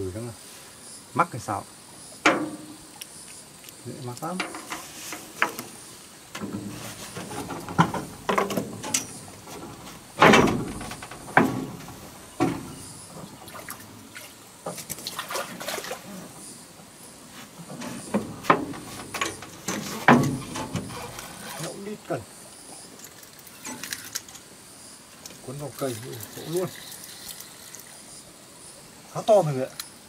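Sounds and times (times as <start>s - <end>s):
fishing gear knocking on metal boat: 6.4s - 12.9s.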